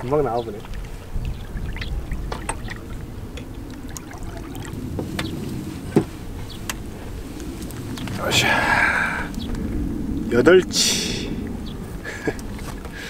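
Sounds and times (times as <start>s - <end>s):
water splashing and sloshing: 0.0s - 8.2s.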